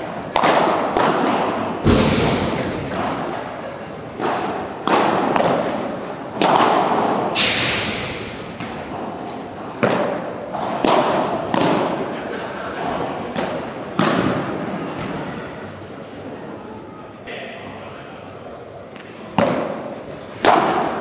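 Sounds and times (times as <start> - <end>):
rackets hitting ball: 0.0 - 12.2, 12.8 - 15.2, 19.0 - 21.0.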